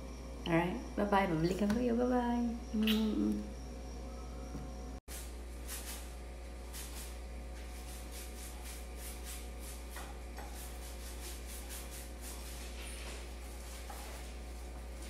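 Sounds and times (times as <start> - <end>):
paint swishing on a wall: 5.1 - 15.0.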